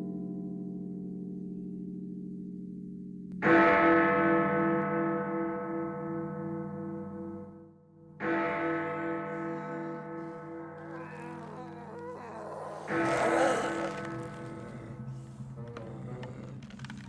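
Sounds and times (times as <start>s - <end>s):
deep bell ringing: 8.2s - 15.6s.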